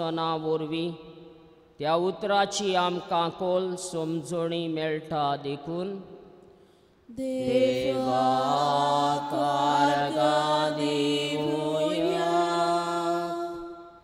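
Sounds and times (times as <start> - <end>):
slow devotional chant singing: 7.0 - 14.0.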